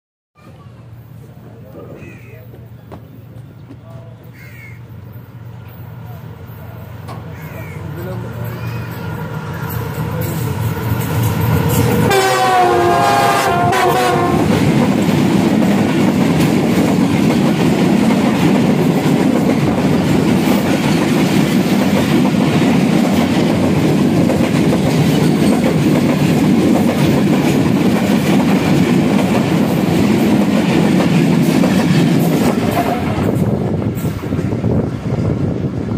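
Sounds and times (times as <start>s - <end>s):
train wheels clattering on rails: 8.0s - 35.6s
train horn: 12.0s - 14.6s, 32.6s - 33.3s.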